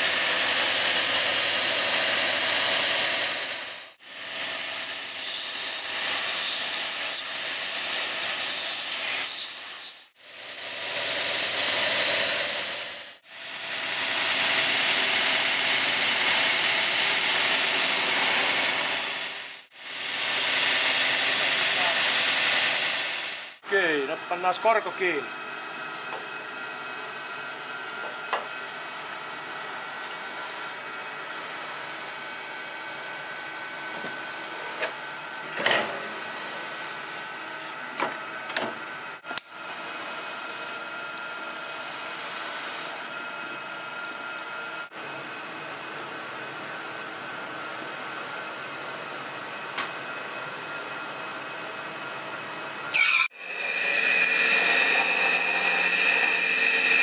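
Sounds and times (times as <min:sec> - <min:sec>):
workshop machinery hum: 0:00.0 - 0:57.0.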